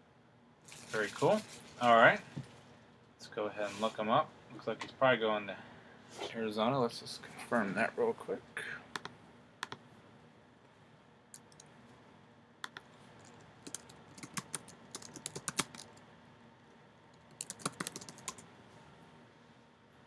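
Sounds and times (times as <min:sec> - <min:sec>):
typing on computer keyboard: 0:11.4 - 0:11.7, 0:12.6 - 0:16.0, 0:17.2 - 0:18.4.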